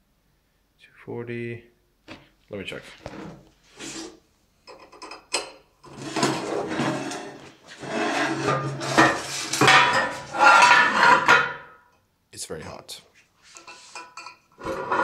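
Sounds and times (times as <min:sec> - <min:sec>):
steel plate scraping on steel: 0:05.9 - 0:11.8, 0:13.5 - 0:15.0.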